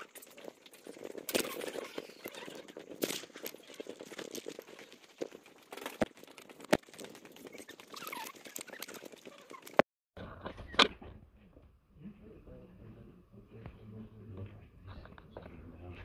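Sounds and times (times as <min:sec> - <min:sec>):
handheld camera rustling and clicking: 0:00.0 - 0:11.2
footsteps: 0:00.0 - 0:12.2.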